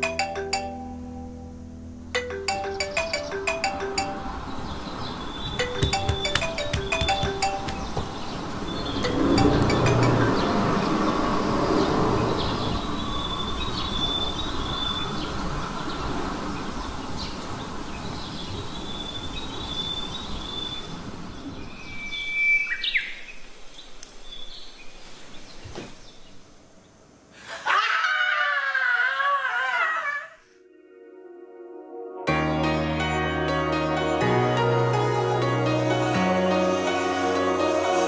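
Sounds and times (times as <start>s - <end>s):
birds chirping: 2.5s - 27.0s
brief high tone: 8.9s - 10.8s
man and woman screaming: 27.5s - 30.4s.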